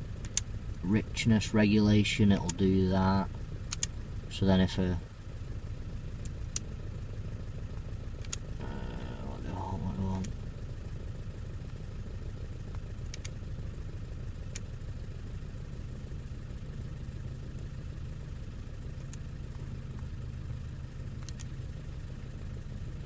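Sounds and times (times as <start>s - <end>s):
car engine idling: 0.0s - 23.0s
faint clicks: 3.7s - 4.0s, 8.2s - 9.2s, 12.7s - 13.4s, 21.2s - 21.5s.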